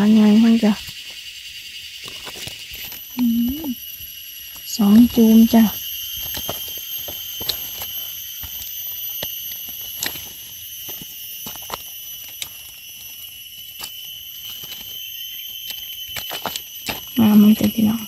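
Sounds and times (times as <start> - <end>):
night insects droning: 0.0 - 18.0.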